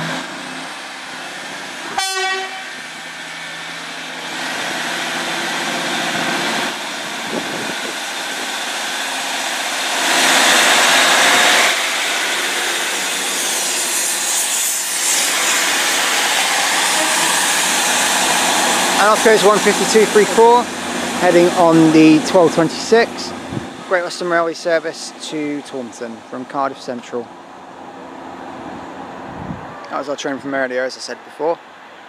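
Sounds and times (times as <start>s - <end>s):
train wheels on rails: 0.0s - 25.5s
diesel train engines: 0.0s - 32.0s.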